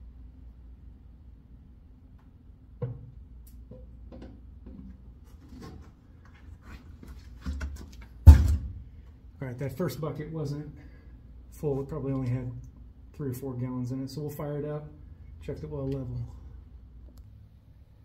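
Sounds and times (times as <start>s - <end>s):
low steady hum: 0.0s - 18.0s
loud thump: 8.2s - 8.8s.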